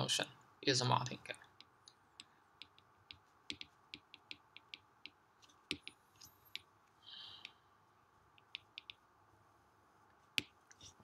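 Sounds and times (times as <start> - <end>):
stylus tapping on glass screen: 1.5 - 6.8, 8.3 - 9.1, 10.3 - 10.6.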